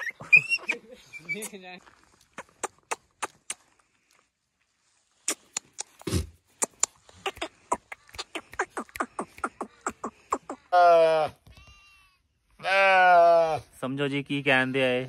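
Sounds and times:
person making sharp clicks: 2.4 - 3.7, 5.2 - 10.7.

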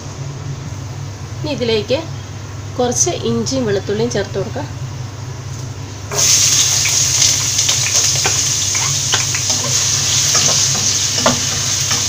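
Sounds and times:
food sizzling in hot oil: 6.1 - 12.0.

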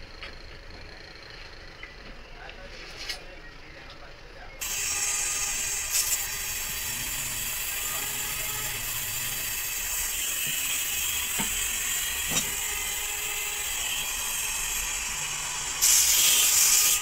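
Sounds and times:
gas torch flame hissing: 4.6 - 17.0.

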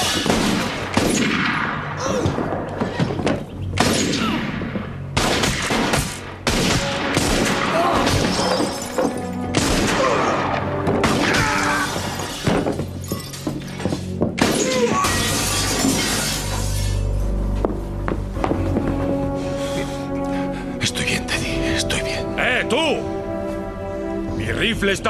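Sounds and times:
film music: 0.0 - 25.0
glass breaking: 8.1 - 9.5, 12.1 - 13.8, 14.4 - 17.0.

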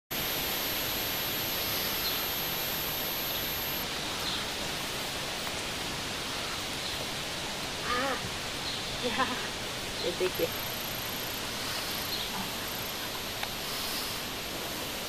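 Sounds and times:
faint high chirps: 0.1 - 4.4, 10.0 - 13.5
steady outdoor hiss: 0.1 - 15.0.

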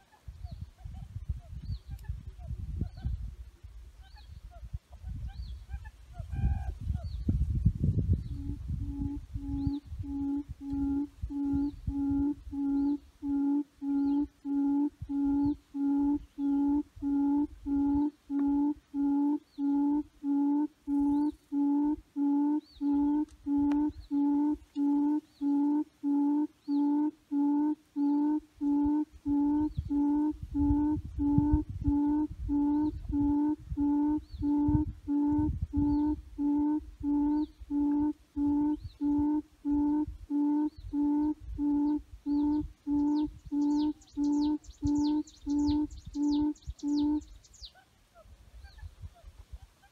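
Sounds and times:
faint higher chirp: 8.2 - 47.8
low hooting lure call: 8.2 - 47.9.

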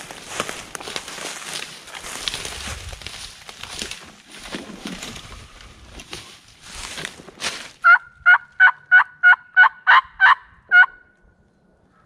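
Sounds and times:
footsteps crunching through dry leaves: 0.0 - 7.8
turkey yelps on a mouth call: 7.8 - 11.1.

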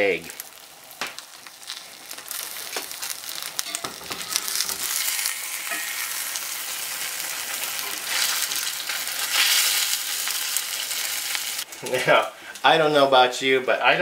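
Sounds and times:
egg sizzling in a skillet: 0.2 - 12.7
metal spatula scraping a pan: 3.5 - 6.8.

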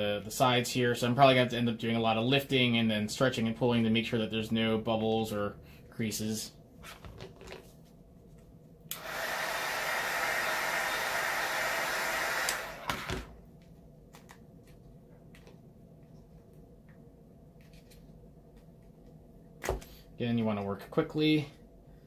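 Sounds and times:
heat gun blowing: 8.9 - 13.3.

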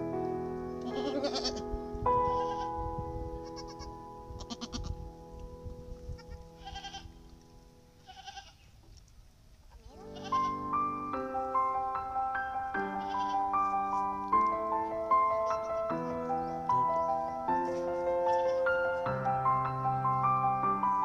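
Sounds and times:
soft piano-like music: 0.0 - 8.4, 9.8 - 21.0
goat bleating: 0.8 - 1.6, 2.2 - 2.7, 3.4 - 5.0, 6.2 - 7.2, 8.0 - 8.6, 10.1 - 10.6, 13.0 - 13.4, 18.3 - 18.6.

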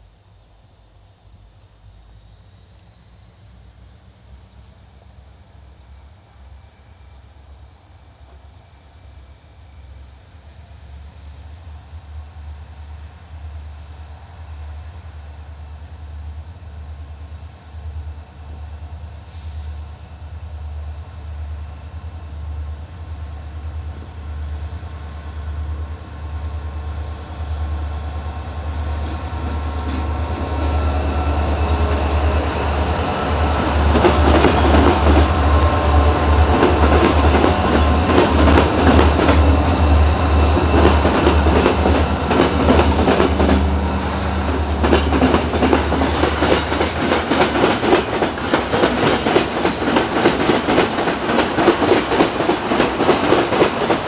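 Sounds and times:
freight train rumbling past: 0.0 - 54.0
train wheels clattering over rails: 28.8 - 54.0.

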